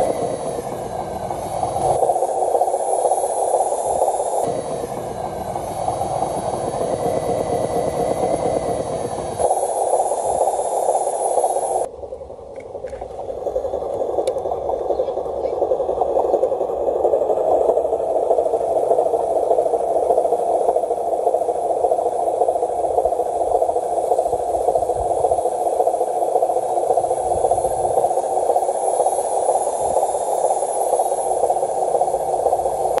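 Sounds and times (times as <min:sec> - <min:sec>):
model truck tipping motor running: 0:03.8 - 0:10.4.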